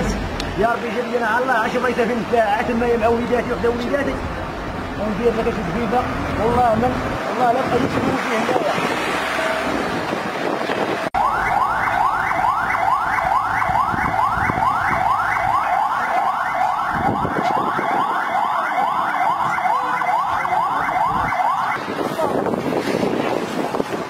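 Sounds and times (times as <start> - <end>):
electronic siren yelping: 11.2 - 21.9.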